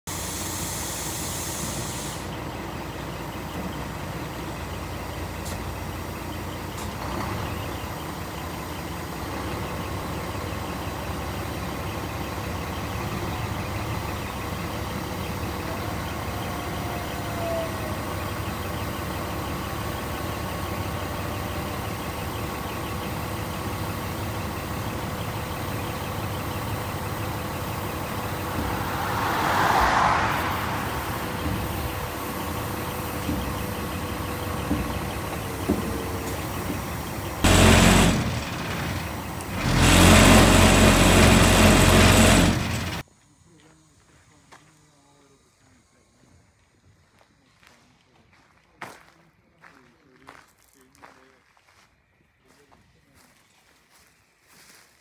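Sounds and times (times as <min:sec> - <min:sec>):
air hiss: 0:00.1 - 0:02.3
diesel truck idling: 0:00.1 - 0:51.3.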